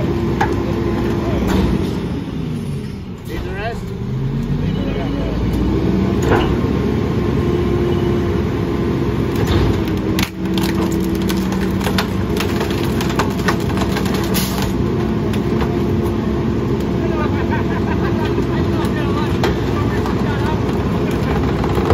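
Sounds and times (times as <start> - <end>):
garbage truck engine hum: 0.0 - 21.9
branches cracking and snapping: 9.3 - 16.2.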